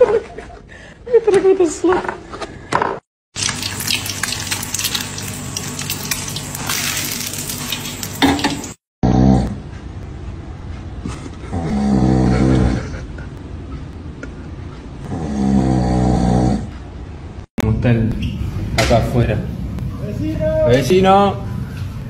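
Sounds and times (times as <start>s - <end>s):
egg sizzling in frying pan: 3.4s - 8.8s.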